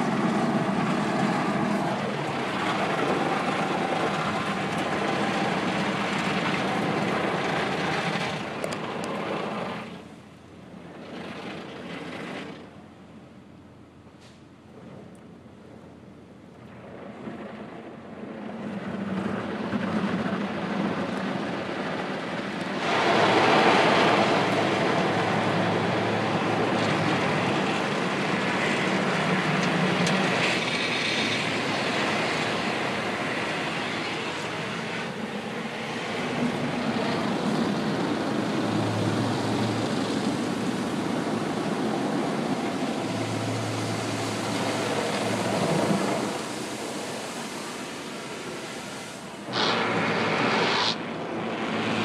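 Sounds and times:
car wash water spray and brushes: 0:00.0 - 0:13.5, 0:16.1 - 0:52.0.

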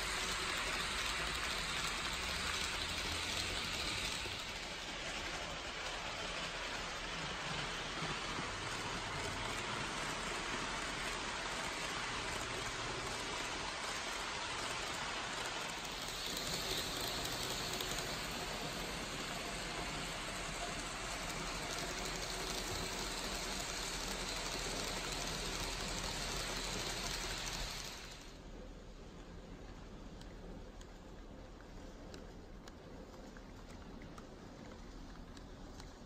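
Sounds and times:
model train wheels rattling: 0:00.0 - 0:28.4
model train whine: 0:00.0 - 0:28.4.

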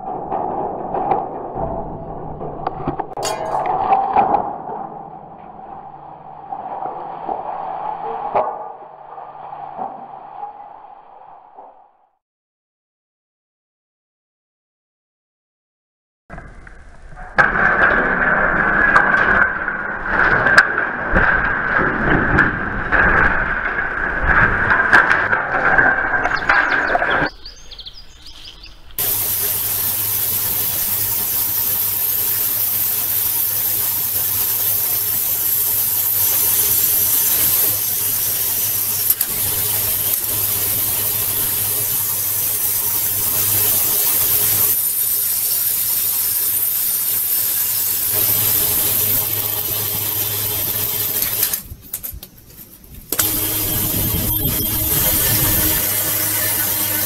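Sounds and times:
generator humming: 0:26.3 - 0:51.9, 0:53.1 - 0:57.0.

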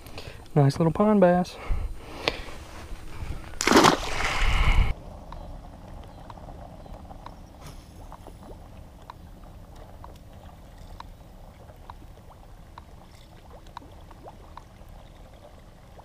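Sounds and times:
low steady rumble: 0:00.0 - 0:16.0
fish plinks at water surface: 0:03.6 - 0:04.4.

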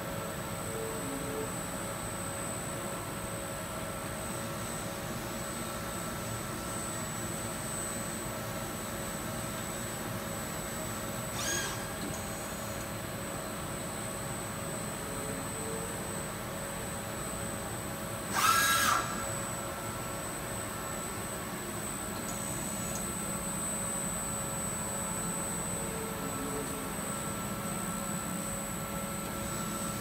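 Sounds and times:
machining centre humming: 0:00.0 - 0:30.0
servo whine: 0:11.3 - 0:12.8, 0:18.2 - 0:30.0.

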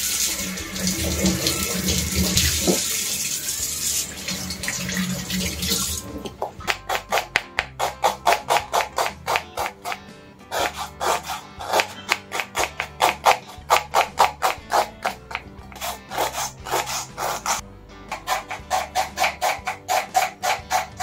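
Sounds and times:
background music: 0:00.0 - 0:21.0
knife chopping on wooden board: 0:06.3 - 0:21.0.

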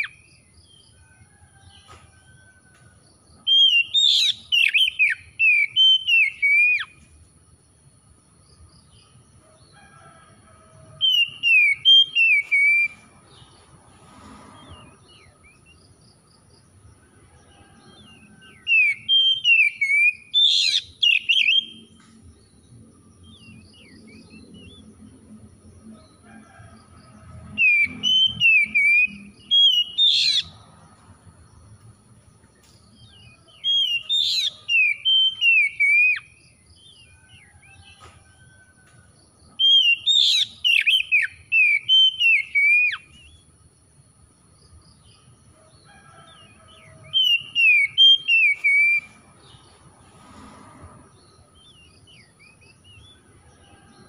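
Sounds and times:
bird singing whistled phrases: 0:03.5 - 0:06.9, 0:18.7 - 0:21.8, 0:39.7 - 0:43.1.

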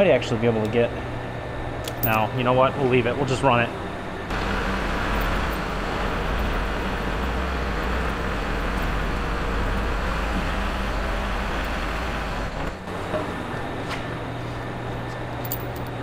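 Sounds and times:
tractor diesel engine running: 0:04.3 - 0:13.8.

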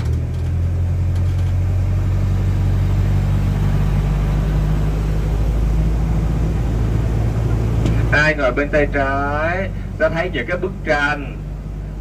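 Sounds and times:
tram engine humming: 0:00.0 - 0:12.0.

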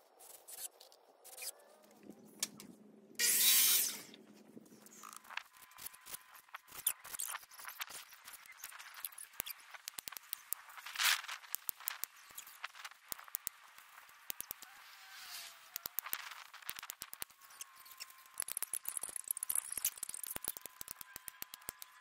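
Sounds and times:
wire mesh clicking and rattling: 0:05.0 - 0:14.7, 0:15.7 - 0:22.0.

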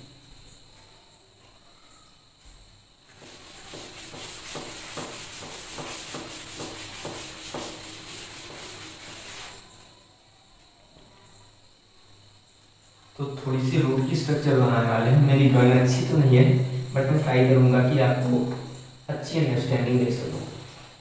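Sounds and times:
duster scrubbing a chalkboard: 0:03.1 - 0:09.8.

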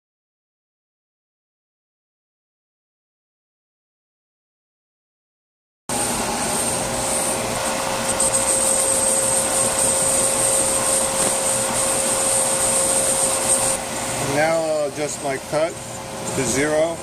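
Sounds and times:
brake lathe drone and whine: 0:05.9 - 0:17.0.

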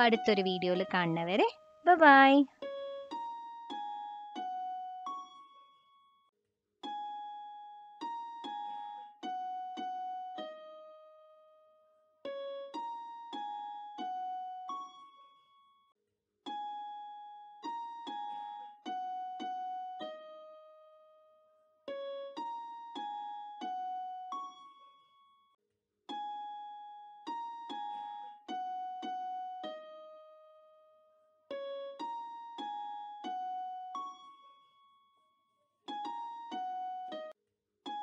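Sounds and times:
slow keyboard melody: 0:26.2 - 0:34.2.

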